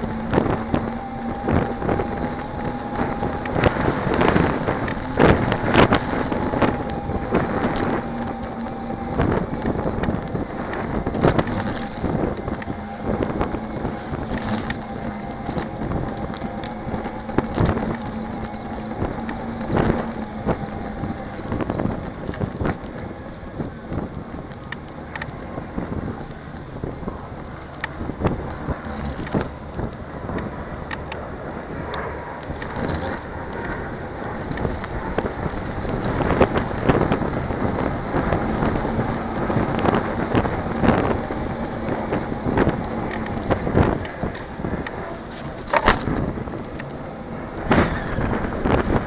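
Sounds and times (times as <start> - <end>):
faint electric motor whine: 0.0 - 49.0
wind on microphone: 0.0 - 49.0.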